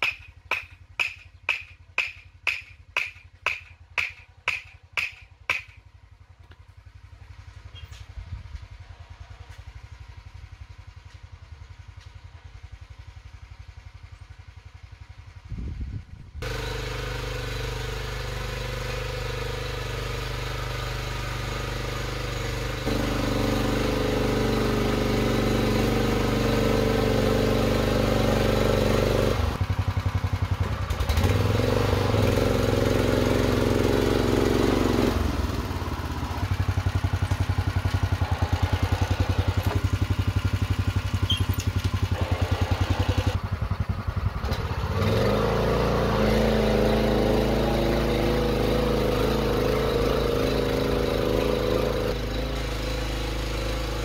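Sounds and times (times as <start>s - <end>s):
tiller engine running: 16.4s - 54.0s.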